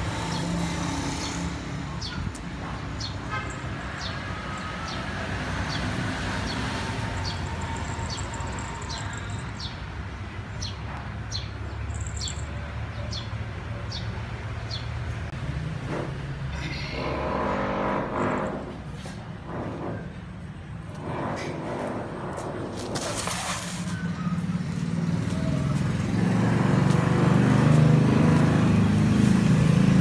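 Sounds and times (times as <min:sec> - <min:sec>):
road traffic rumble: 0:00.0 - 0:30.0
small bird chirping: 0:10.6 - 0:13.3.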